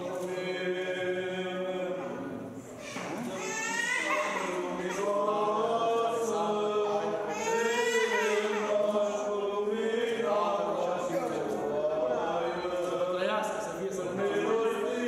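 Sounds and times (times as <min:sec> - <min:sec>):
voices chanting: 0:03.4 - 0:15.0.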